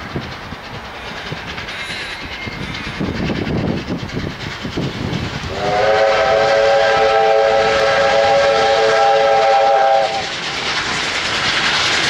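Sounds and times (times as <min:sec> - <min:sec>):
steam locomotive exhaust beats: 0:00.0 - 0:12.0
steam whistle blast: 0:05.5 - 0:10.3.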